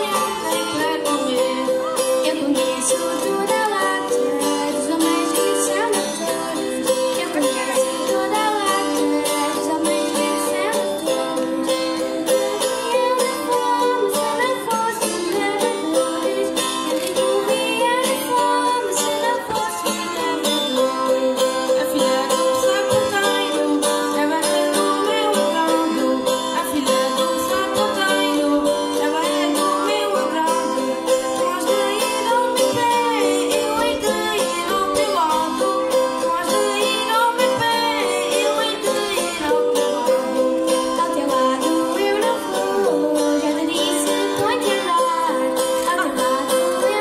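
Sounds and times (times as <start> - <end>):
guitars strummed: 0.0 - 47.0
voices singing: 0.0 - 47.0.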